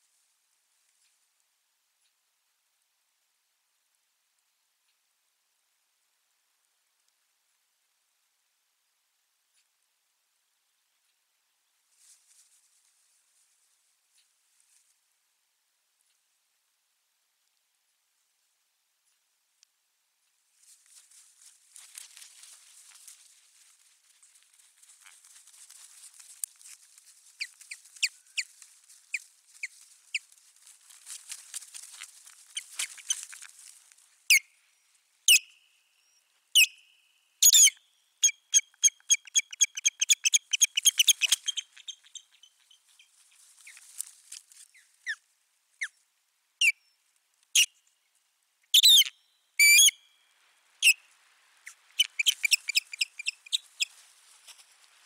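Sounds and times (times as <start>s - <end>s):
soft hiss: 0.0s - 38.6s, 40.1s - 55.0s
osprey whistled calls: 35.3s - 42.8s, 48.8s - 50.1s, 52.0s - 53.9s.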